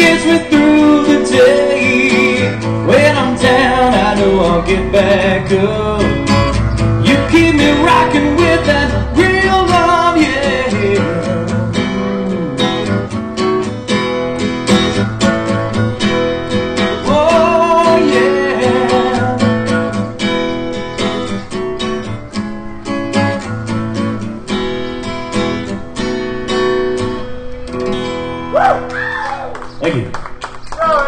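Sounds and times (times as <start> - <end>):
person singing: 0.0 - 13.1, 17.1 - 19.5
acoustic guitar strumming: 0.0 - 28.9.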